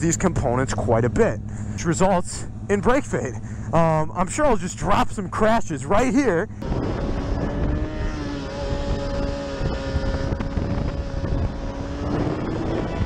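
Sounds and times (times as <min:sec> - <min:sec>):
motorcycle engine running: 0:00.0 - 0:13.0
wind buffeting microphone: 0:06.6 - 0:13.0.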